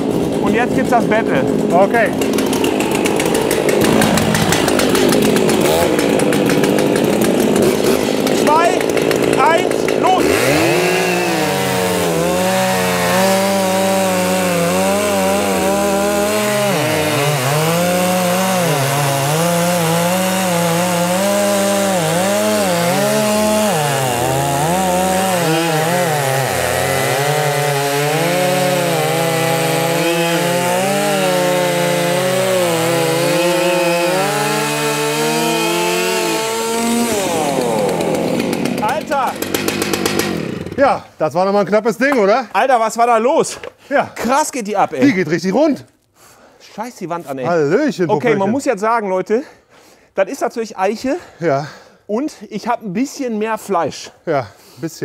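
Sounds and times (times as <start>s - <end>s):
chainsaws cutting log: 0.0s - 41.1s, 47.2s - 48.7s.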